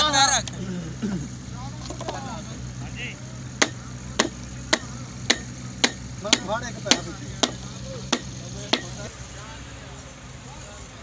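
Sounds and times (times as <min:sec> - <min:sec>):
faint voices: 0:00.0 - 0:11.0
hammer striking something solid: 0:03.6 - 0:09.0.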